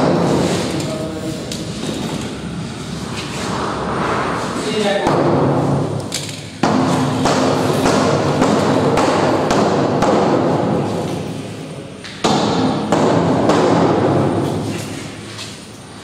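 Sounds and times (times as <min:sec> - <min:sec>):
loud regular thumps: 0:01.6 - 0:10.8.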